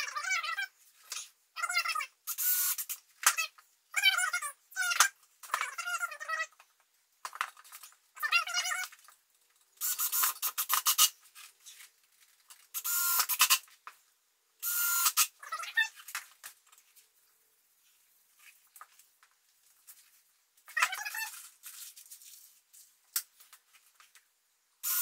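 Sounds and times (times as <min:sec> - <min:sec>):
glue bottle sputtering and squeaking: 0:08.2 - 0:09.1, 0:09.8 - 0:11.8, 0:20.7 - 0:21.5.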